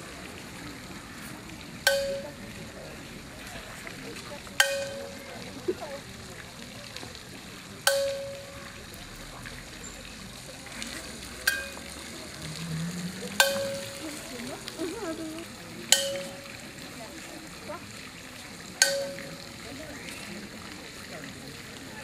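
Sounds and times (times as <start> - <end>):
metal percussion ringing: 1.9 - 2.8, 4.6 - 5.6, 7.9 - 8.9, 11.5 - 12.1, 13.4 - 14.5, 15.9 - 16.8, 18.8 - 19.8.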